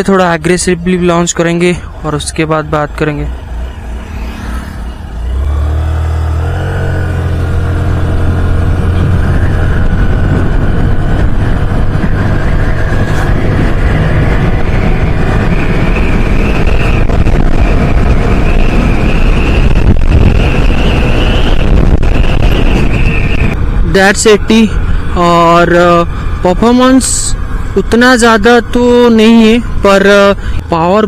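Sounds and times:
high steady whine: 0.0 - 30.9
rushing wind noise: 0.0 - 31.0
scooter engine accelerating: 3.3 - 17.1.

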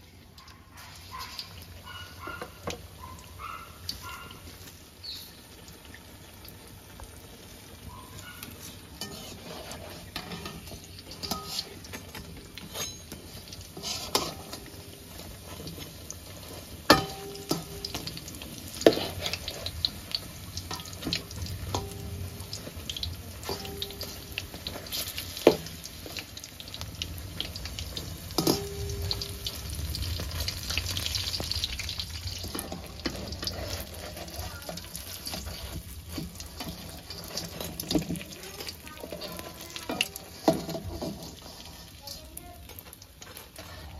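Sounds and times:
metal spoon scraping steel pot: 9.0 - 14.7, 32.4 - 42.0.

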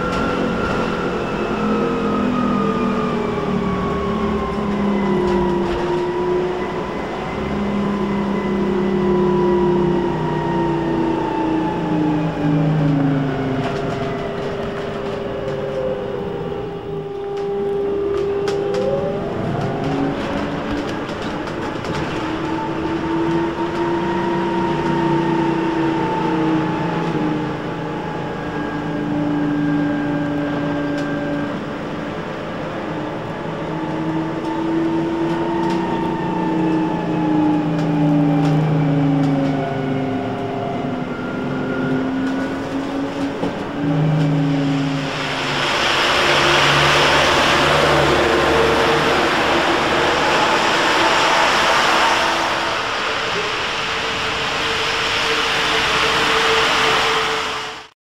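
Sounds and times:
trolleybus motor whining: 0.0 - 58.0
wet traffic: 0.0 - 58.0
rain hiss: 44.1 - 57.9.

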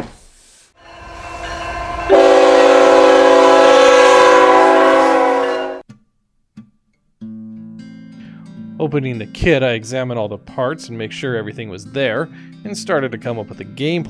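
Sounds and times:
train horn blowing: 0.8 - 5.8
train rumble: 0.8 - 5.8.

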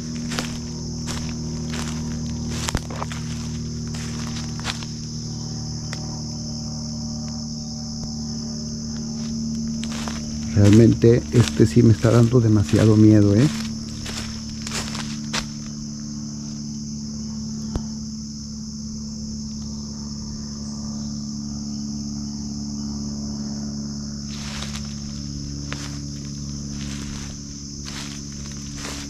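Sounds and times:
footsteps scuffing through brush: 0.0 - 6.1, 8.0 - 16.7, 24.3 - 29.0
insects trilling: 0.0 - 29.0
low hum: 0.0 - 29.0.

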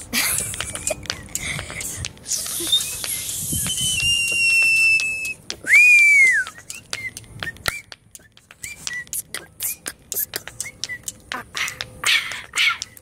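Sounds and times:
sharp tapping clicks: 0.0 - 13.0
person whistling: 2.3 - 9.8, 10.6 - 11.2.

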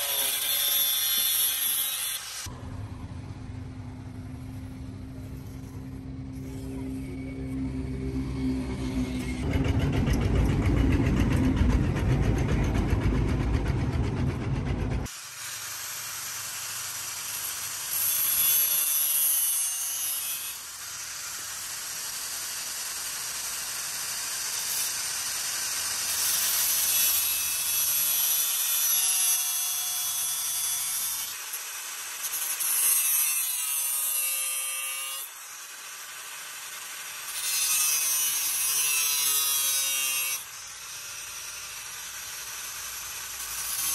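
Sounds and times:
angle grinder grinding steel: 0.0 - 2.5, 4.5 - 12.8, 15.0 - 43.9
loud low rumble: 2.5 - 15.1.

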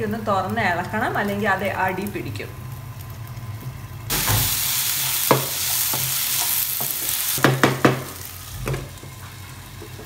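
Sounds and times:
vegetables sizzling in a pan: 0.0 - 10.0
spatula and lid knocking pan: 5.2 - 8.9.

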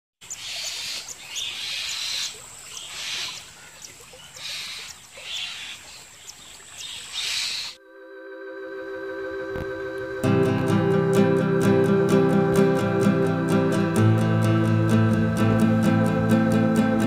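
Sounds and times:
nestlings begging calls: 0.3 - 6.0
faint high whine: 7.8 - 11.5
music: 7.8 - 17.0.

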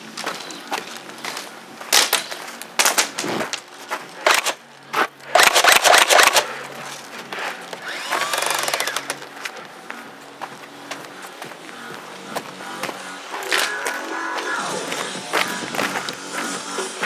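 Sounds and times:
airsoft guns firing bursts: 4.2 - 4.6, 5.3 - 6.5, 7.8 - 9.4.

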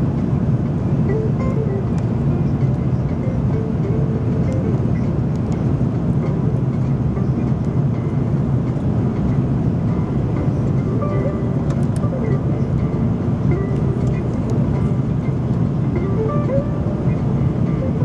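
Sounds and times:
airplane cabin engine drone: 0.0 - 18.0.

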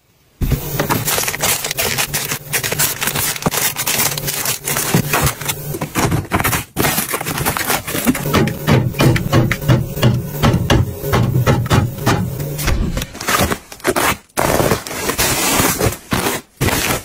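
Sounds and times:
plastic wrappers crinkling: 0.4 - 8.3, 13.0 - 17.0
cardboard box scraping: 0.4 - 8.4, 12.9 - 17.0.

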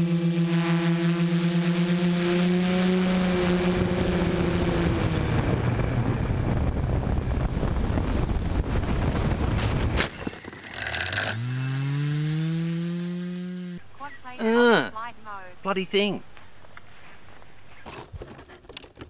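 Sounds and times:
propeller motors humming: 0.0 - 16.9
wind rushing: 3.6 - 10.0.

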